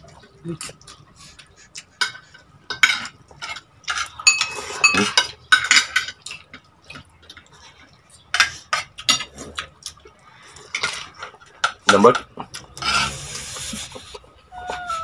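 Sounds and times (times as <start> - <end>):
cutlery clinking on a plate: 1.9 - 7.1, 8.3 - 9.5.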